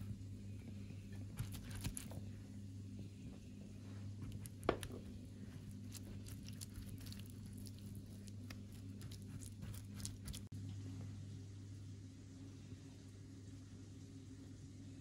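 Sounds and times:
low hum: 0.0 - 15.0
pastry brush dabbing wet taps: 3.2 - 10.5.

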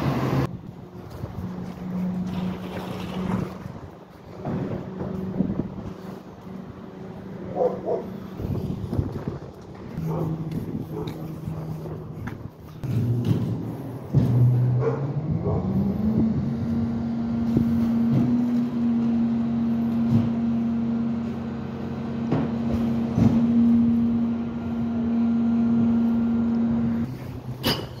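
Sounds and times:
metallic clanks: 27.5 - 28.0.

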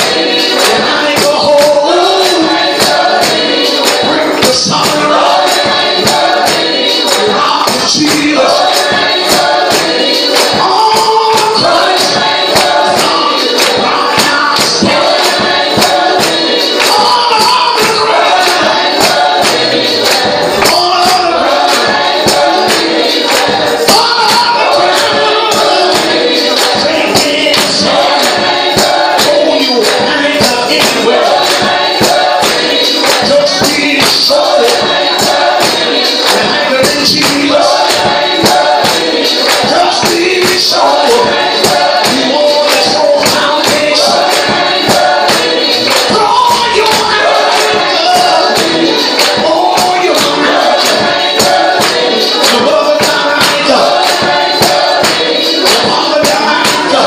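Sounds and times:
gospel group singing: 0.0 - 57.0
hands clapping a beat: 0.0 - 57.0.

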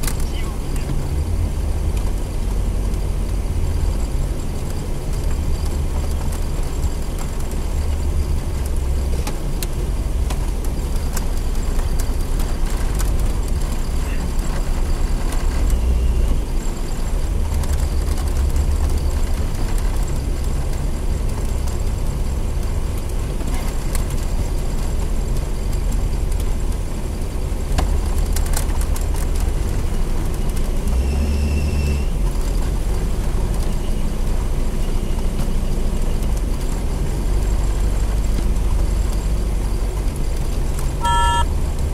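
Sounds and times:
car engine and road noise: 0.0 - 41.9
faint high squeaks: 41.0 - 41.5.

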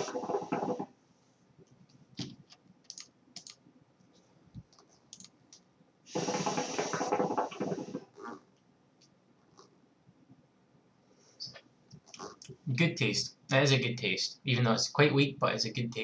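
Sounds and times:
water bubbling in a hookah: 6.1 - 8.1.

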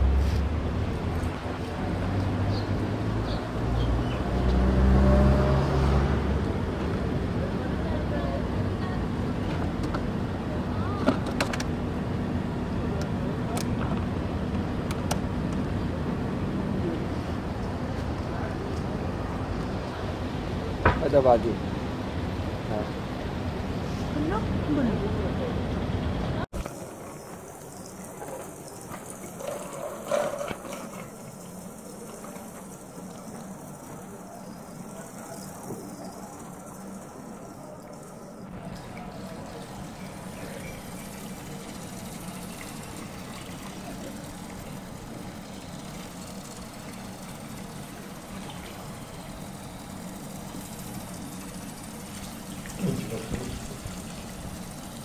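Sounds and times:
street traffic drone: 0.0 - 55.0
running water rushing: 26.5 - 55.0.

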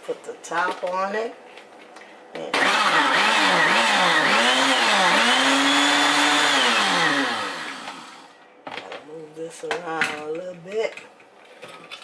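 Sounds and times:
blender motor running: 2.6 - 8.3.

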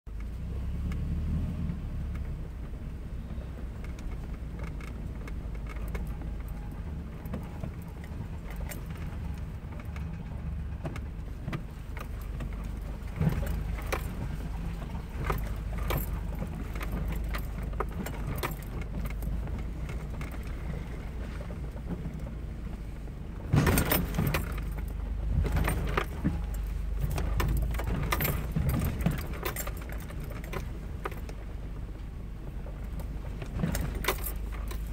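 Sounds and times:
vehicle engine running low: 0.1 - 34.9
loose rattles and knocks: 3.9 - 20.9, 23.4 - 31.6, 32.7 - 34.9.

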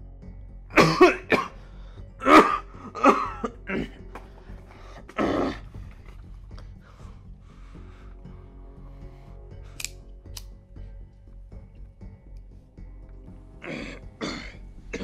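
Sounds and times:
man coughing hoarsely: 0.7 - 1.6, 2.2 - 4.0, 13.6 - 15.0
man clearing his throat: 0.8 - 1.6, 2.2 - 4.0, 13.6 - 15.0.

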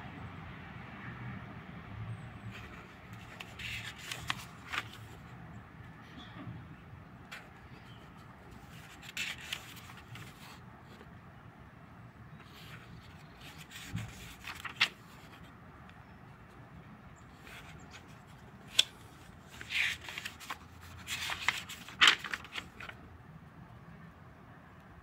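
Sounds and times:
paper pages rustling: 2.5 - 5.3, 7.3 - 11.1, 12.4 - 15.5, 17.3 - 23.0
pages snapping: 3.3 - 5.1, 8.7 - 10.4, 13.1 - 15.3, 18.7 - 23.0.

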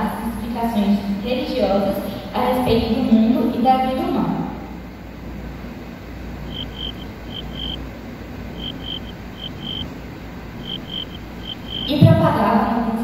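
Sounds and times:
steady low hum: 0.0 - 13.0
insect chirping: 6.3 - 12.0.

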